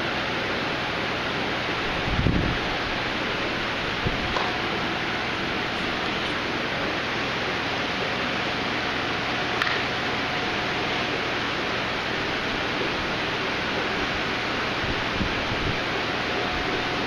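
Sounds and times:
aquarium filter running water: 0.0s - 17.0s
small click: 9.6s - 9.9s.

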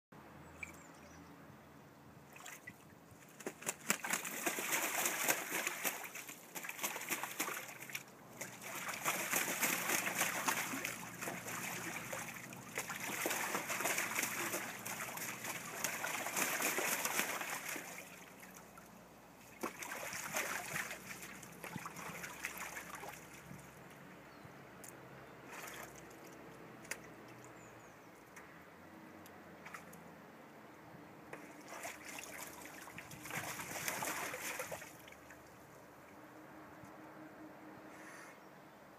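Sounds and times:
goose splashing in water: 2.3s - 23.8s, 25.4s - 27.6s, 31.4s - 35.7s
goose wings flapping: 3.2s - 12.2s, 12.8s - 18.1s, 33.2s - 34.8s.

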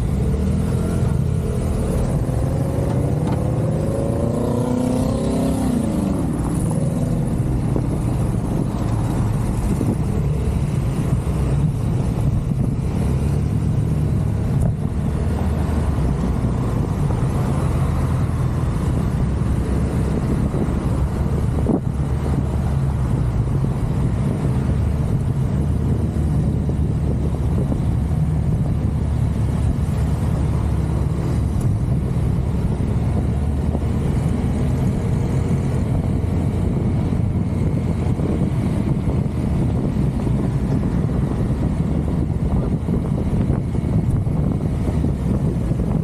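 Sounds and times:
motorbike engine drone: 0.0s - 46.0s
wind rushing over microphone: 0.0s - 46.0s.

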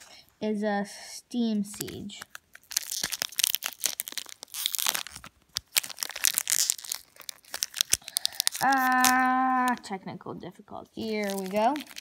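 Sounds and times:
foil wrapper tearing and crinkling: 1.7s - 9.8s, 11.0s - 12.0s.

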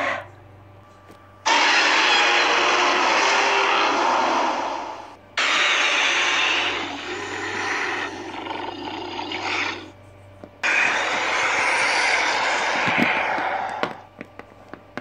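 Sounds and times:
loud roaring rush: 1.5s - 9.9s, 10.6s - 14.1s.

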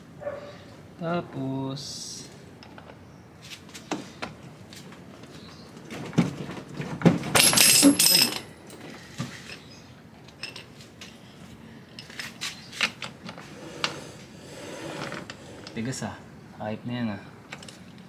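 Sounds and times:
socket wrench clinking on metal: 7.4s - 8.5s.

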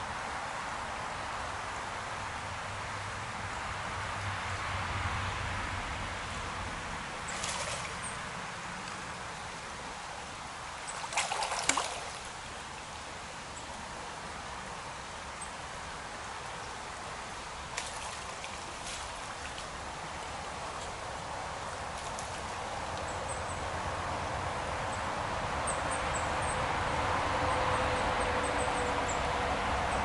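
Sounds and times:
stream running over gravel: 6.0s - 23.8s
fish splashing at surface: 10.9s - 12.4s.

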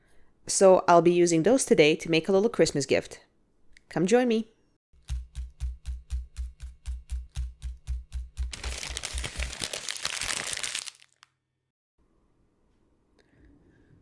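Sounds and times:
paper crinkling: 8.5s - 11.3s.

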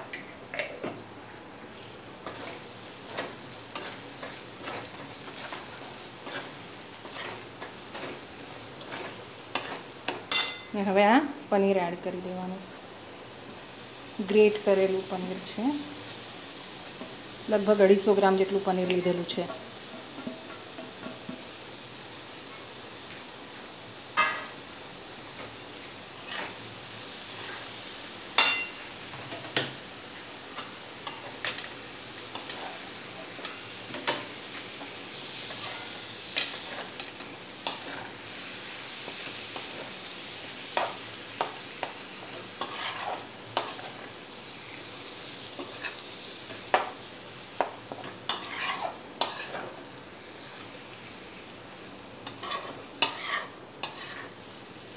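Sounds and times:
oil sizzling: 0.0s - 54.9s
spoon scraping metal pan: 3.7s - 8.2s, 8.8s - 10.7s, 26.2s - 26.6s, 35.5s - 37.0s, 40.8s - 44.0s, 47.6s - 49.8s, 52.2s - 54.4s.

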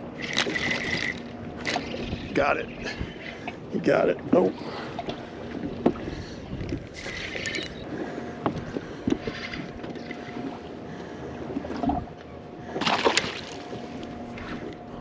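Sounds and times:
wind on microphone: 0.0s - 3.3s, 5.6s - 7.8s
faint steady hum: 0.0s - 15.0s
water lapping against boat hull: 0.0s - 15.0s.

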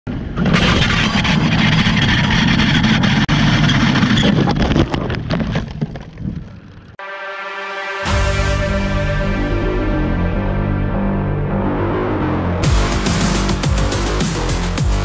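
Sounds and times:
motorcycle crashing: 0.2s - 7.0s
motorcycle engine at speed: 0.4s - 4.2s.

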